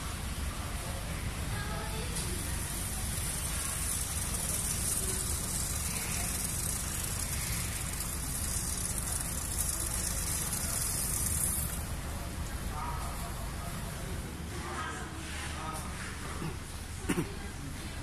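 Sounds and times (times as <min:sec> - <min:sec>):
machine hissing: 0:01.3 - 0:13.7.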